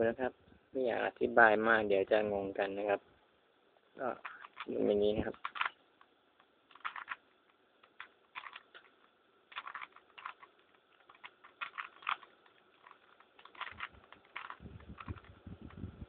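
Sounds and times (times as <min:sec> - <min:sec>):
plastic puzzle cube clicking: 0:04.2 - 0:15.8.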